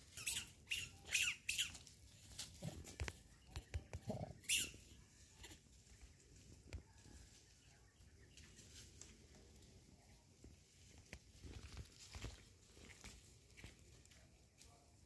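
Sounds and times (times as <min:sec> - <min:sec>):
faint rustles and ticks: 0:01.5 - 0:15.0.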